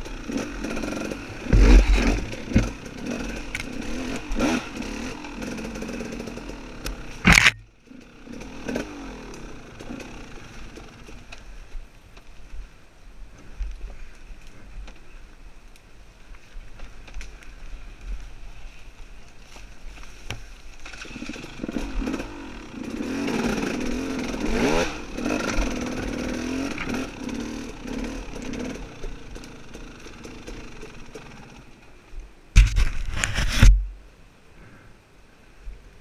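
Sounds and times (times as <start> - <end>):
dirt bike engine revving: 0.0 - 11.3, 20.9 - 31.7.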